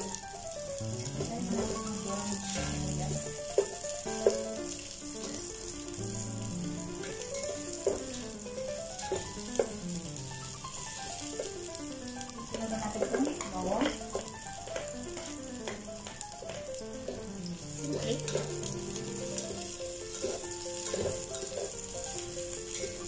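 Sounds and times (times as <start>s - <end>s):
background music melody: 0.0s - 23.0s
onions sizzling in hot oil: 0.0s - 23.0s
spatula scraping and knocking pot: 12.5s - 18.7s, 19.4s - 23.0s.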